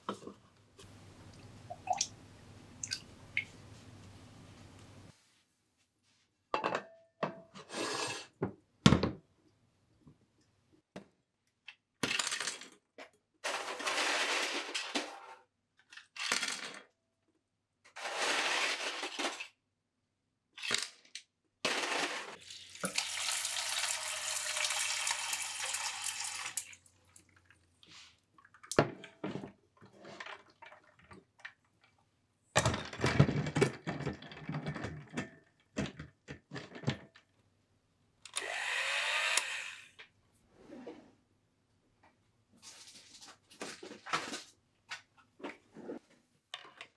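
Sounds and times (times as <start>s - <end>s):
ice cubes clattering into pan: 21.7s - 26.7s
water running into pan: 22.4s - 26.8s.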